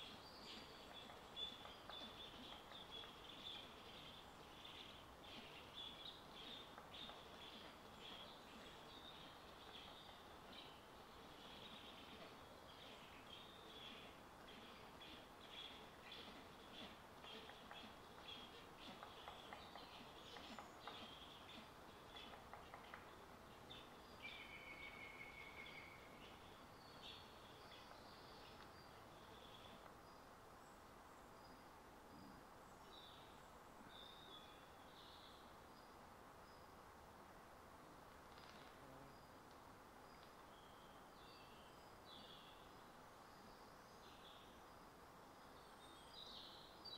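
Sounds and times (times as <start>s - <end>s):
faint birdsong chirps: 0.0s - 46.9s
quiet background hiss: 0.0s - 46.9s.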